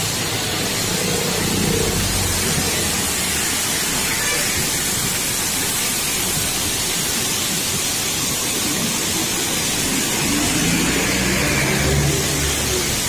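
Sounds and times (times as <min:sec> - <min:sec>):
waterfall rushing: 0:00.0 - 0:13.0
truck engine passing: 0:09.6 - 0:13.0.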